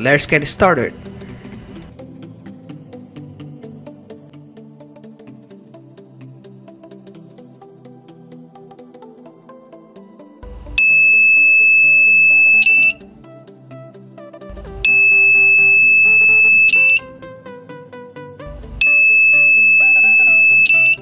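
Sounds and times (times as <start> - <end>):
high-pitched buzzer beep: 10.8 - 13.0, 14.8 - 17.0, 18.8 - 21.0.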